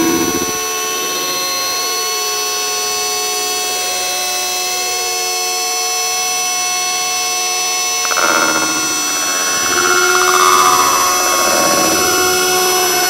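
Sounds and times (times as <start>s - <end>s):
machine-like drone: 7.8s - 13.0s.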